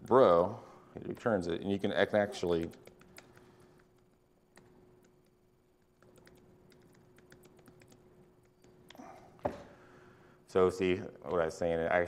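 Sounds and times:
faint steady hum: 0.0s - 12.0s
typing on laptop keyboard: 1.0s - 9.1s.

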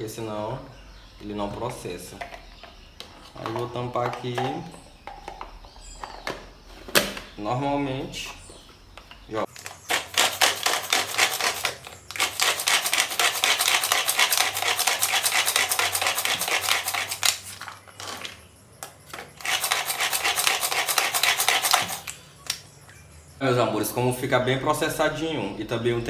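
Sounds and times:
food processor chopping: 9.9s - 17.4s, 19.4s - 22.1s.

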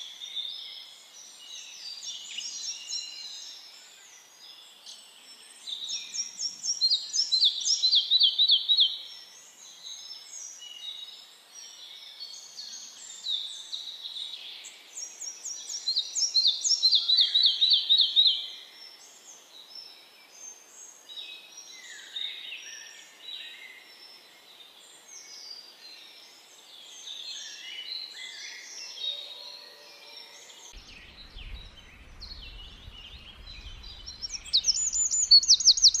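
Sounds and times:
songbirds singing: 0.0s - 36.0s
low rumble: 30.8s - 35.4s
high rapid bird trill: 34.0s - 36.0s.

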